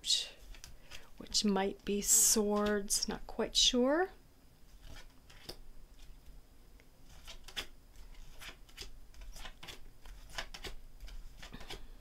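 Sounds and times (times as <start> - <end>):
cards being flipped by hand: 0.4 - 1.1, 4.7 - 6.2, 7.1 - 11.9.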